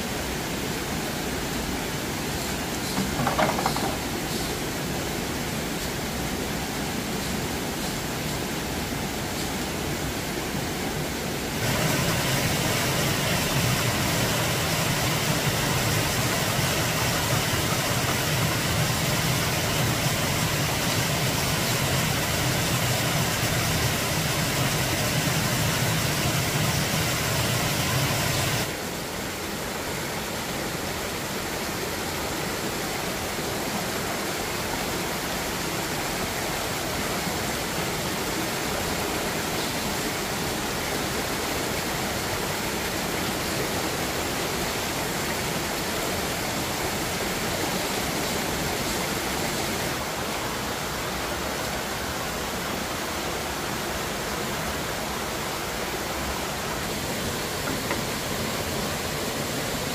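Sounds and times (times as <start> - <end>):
steady rushing noise: 6.1 - 29.1.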